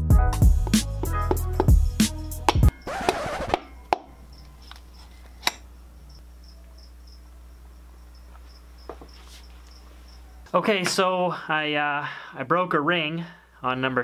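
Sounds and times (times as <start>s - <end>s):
hammer handle tapping piston: 0.6s - 4.1s
piston scraping in bore: 0.7s - 5.6s
crickets chirping: 2.3s - 10.5s.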